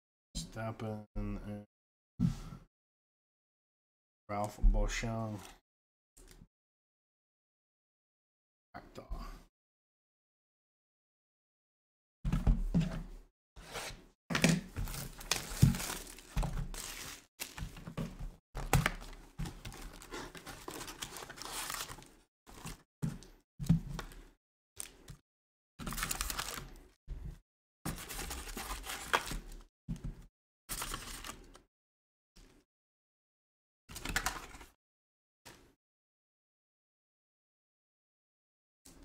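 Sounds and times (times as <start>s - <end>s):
foil wrappers crinkling and tearing: 14.8s - 17.7s, 18.7s - 22.2s, 25.9s - 26.8s.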